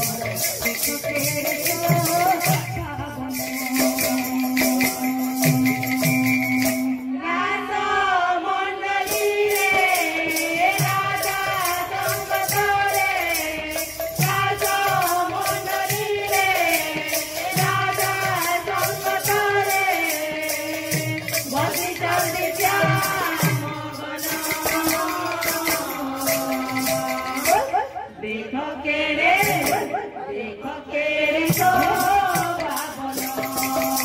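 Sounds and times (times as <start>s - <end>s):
hand cymbals jingling: 0.0s - 7.1s, 9.1s - 28.0s, 31.5s - 34.0s
held steady tone: 0.0s - 7.2s
woman singing: 0.0s - 34.0s.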